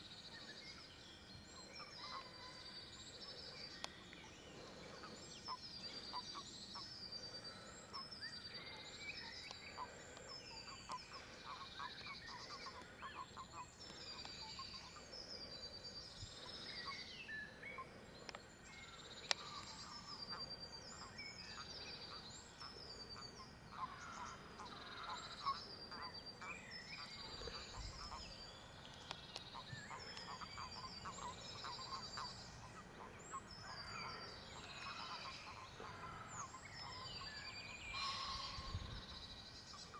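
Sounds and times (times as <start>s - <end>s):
toads clucking calls: 9.2s - 15.1s, 19.2s - 28.4s, 29.0s - 38.8s.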